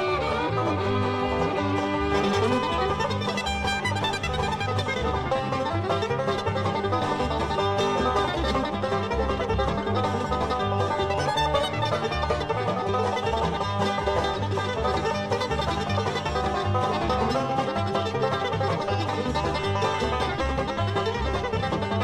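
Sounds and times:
music with plucked strings and bass beat: 0:00.0 - 0:22.0.

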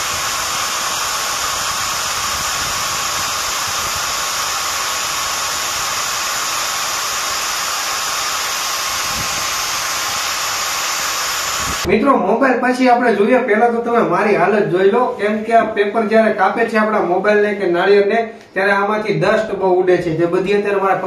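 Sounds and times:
angle grinder whine: 0:00.0 - 0:11.9.

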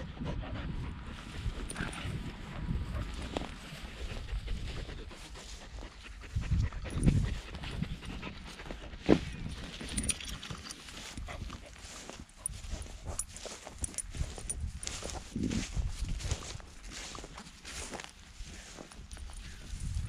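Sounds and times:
dog panting: 0:00.0 - 0:14.0.

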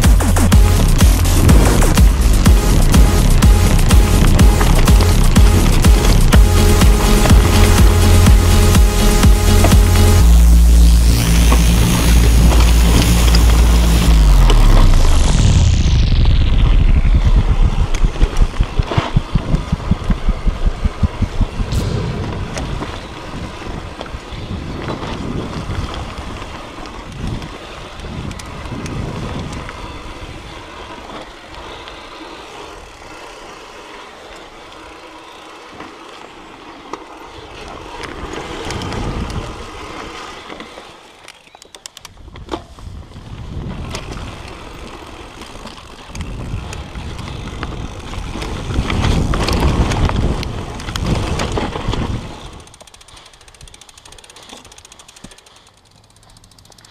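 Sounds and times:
bike rattling: 0:00.0 - 0:56.9
bike tyres on dirt: 0:00.0 - 0:56.9
wind on microphone: 0:12.0 - 0:26.4, 0:46.2 - 0:52.6.

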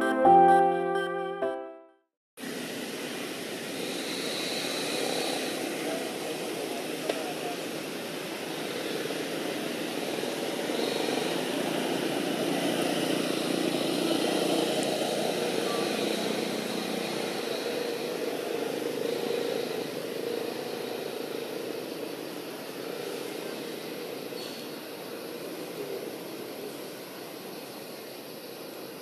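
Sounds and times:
vehicle engine passing: 0:08.3 - 0:22.1.

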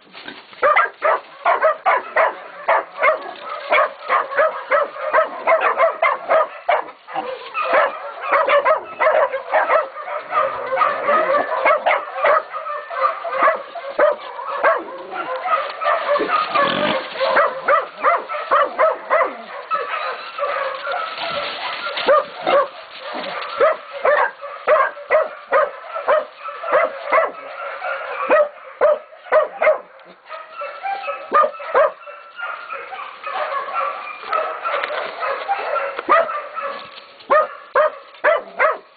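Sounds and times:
puppies barking and yipping: 0:00.0 - 0:38.9.

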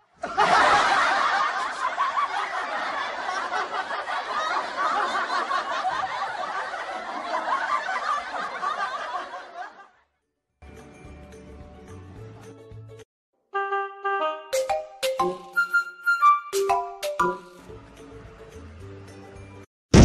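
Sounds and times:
crowd laughing: 0:00.0 - 0:10.2.

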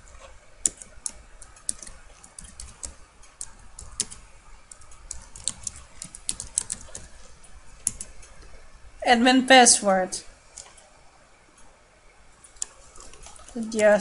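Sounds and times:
typing on a keyboard: 0:00.6 - 0:07.2, 0:07.8 - 0:08.3.

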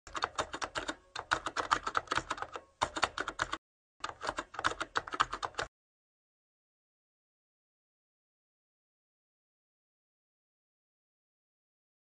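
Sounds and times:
computer keyboard typing: 0:00.1 - 0:05.7.

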